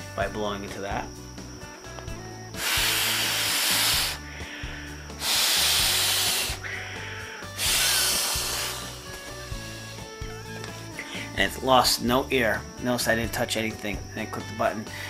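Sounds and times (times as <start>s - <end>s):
breath blown into pillow valve: 2.5s - 10.2s.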